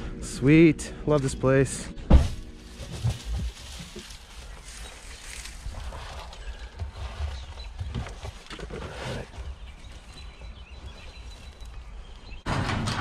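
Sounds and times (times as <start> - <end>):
grass stems rustling: 2.2 - 6.7, 8.0 - 12.3.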